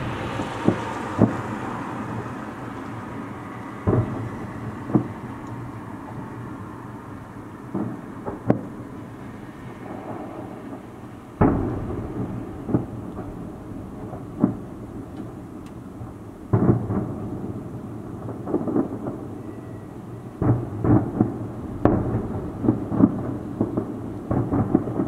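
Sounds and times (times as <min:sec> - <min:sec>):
distant firework booms: 0:00.0 - 0:06.4, 0:07.6 - 0:25.0.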